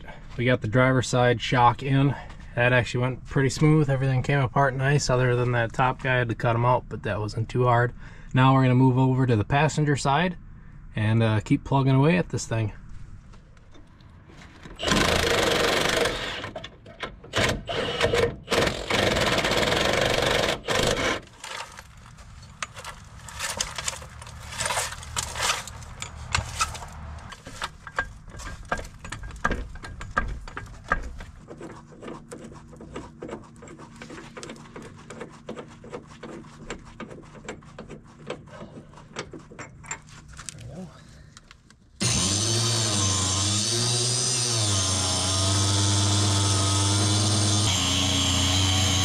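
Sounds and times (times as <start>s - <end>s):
hand tools clicking and clanking: 14.6s - 40.6s
power tool running: 14.8s - 16.6s, 17.3s - 21.3s, 42.0s - 49.0s.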